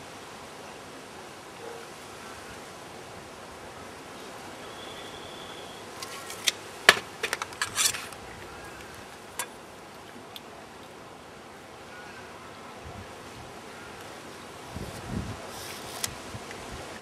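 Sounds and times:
steady background hiss: 0.0s - 17.0s
hand tools clicking and clattering: 6.0s - 8.2s.

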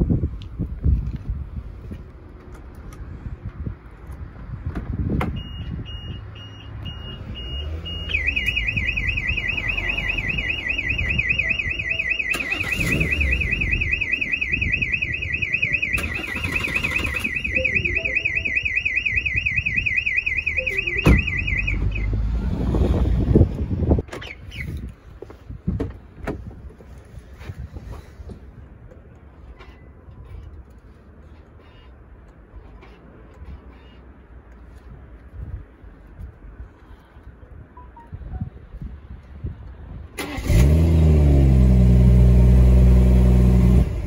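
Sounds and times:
car alarm beeps: 5.3s - 22.2s, 31.6s - 32.0s, 33.7s - 34.1s
car alarm warbling siren: 5.4s - 22.2s.

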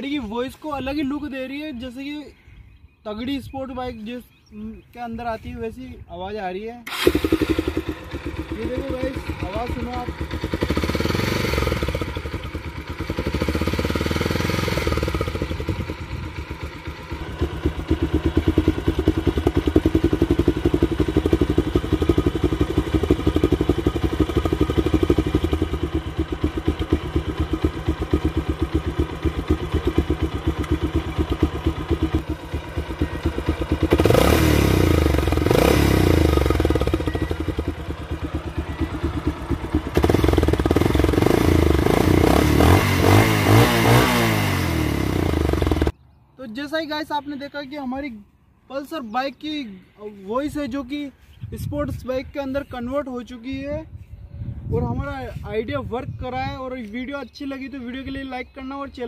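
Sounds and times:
motorcycle engine revving: 6.9s - 46.0s.

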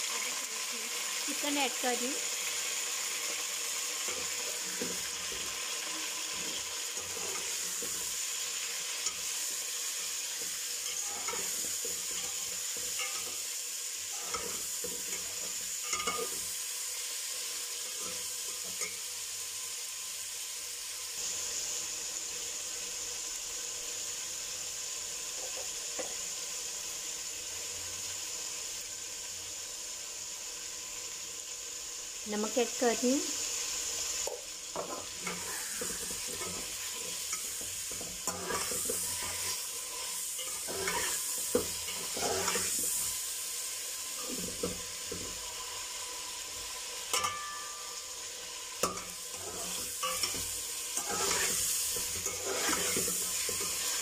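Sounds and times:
chicken sizzling in hot oil: 0.0s - 54.0s
metal spoon scraping a pot: 10.3s - 16.4s, 34.8s - 42.9s, 48.8s - 54.0s.

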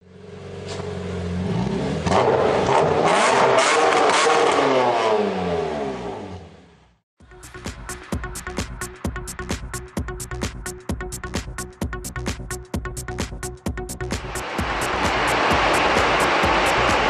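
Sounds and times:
car engine revving: 0.2s - 6.9s, 14.2s - 17.0s.

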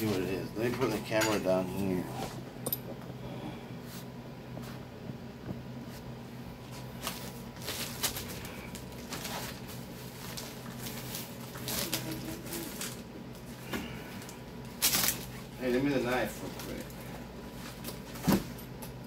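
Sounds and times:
steady low hum: 0.0s - 19.0s
cardboard rustling and crinkling: 6.6s - 13.0s.

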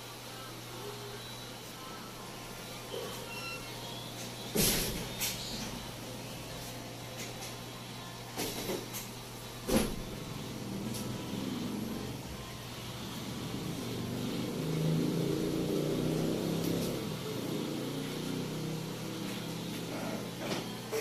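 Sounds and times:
motor vehicle passing: 12.9s - 20.4s.

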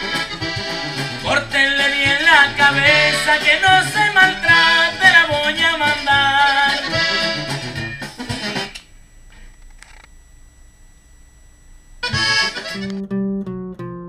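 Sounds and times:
accordion-led folk music: 0.0s - 8.8s, 12.0s - 13.1s.

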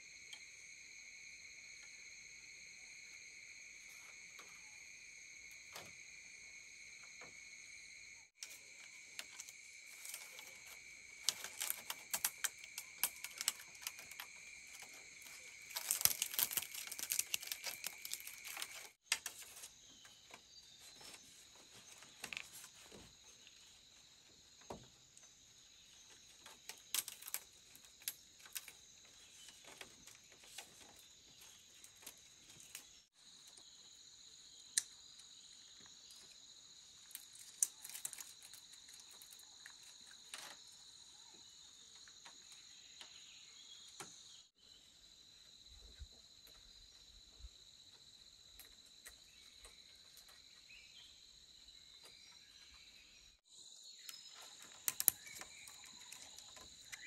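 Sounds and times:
crickets chirring: 0.0s - 57.0s
crackles and rustles of handling: 8.4s - 33.9s, 35.2s - 43.1s, 54.0s - 57.0s.

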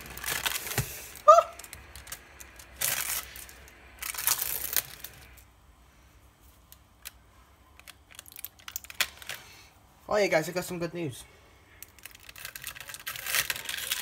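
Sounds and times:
plastic film peeling and tearing: 0.0s - 5.4s, 7.8s - 9.4s, 11.7s - 14.0s.

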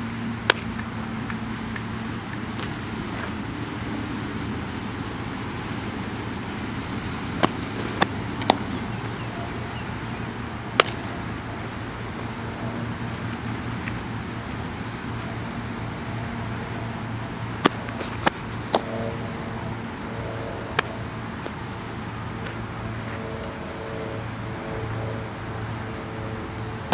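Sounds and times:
road traffic: 0.0s - 26.9s
softball smacking into gloves: 10.7s - 11.1s, 17.6s - 19.1s.

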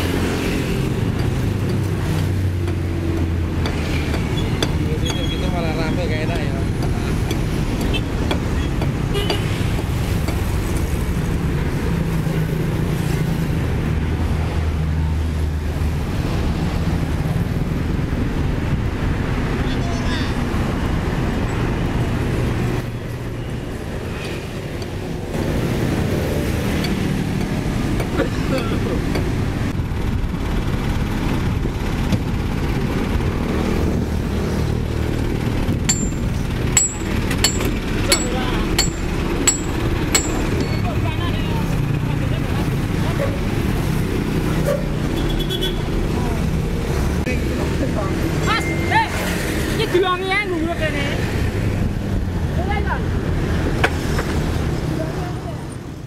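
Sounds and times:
diesel engine rumbling: 0.0s - 19.6s, 20.4s - 56.0s
hand tool clinking on metal: 35.9s - 41.0s.

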